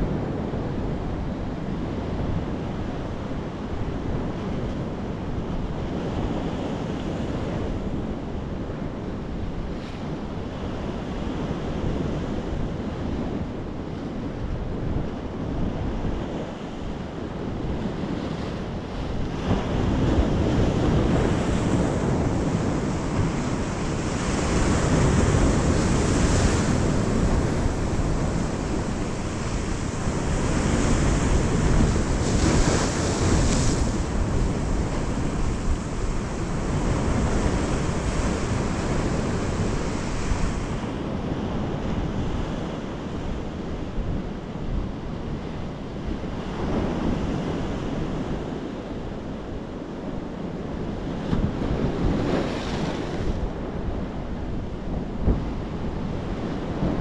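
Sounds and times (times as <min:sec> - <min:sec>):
sea surf breaking on rocks: 0:17.9 - 0:43.3, 0:51.0 - 0:57.0.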